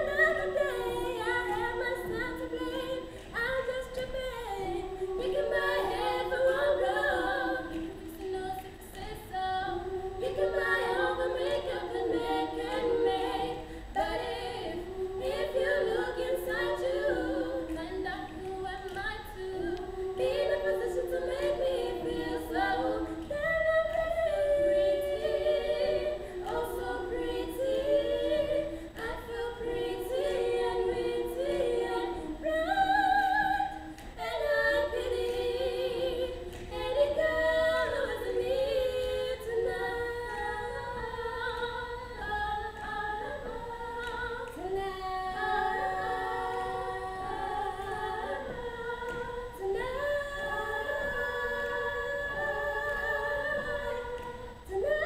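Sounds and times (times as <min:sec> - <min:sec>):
children's choir singing a cappella: 0:00.0 - 0:55.0.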